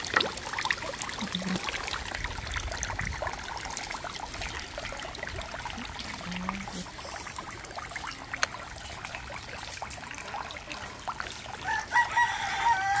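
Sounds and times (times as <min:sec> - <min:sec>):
fountain water trickling: 0:00.0 - 0:13.0
water dripping: 0:00.0 - 0:13.0
rooster crowing: 0:11.6 - 0:13.0.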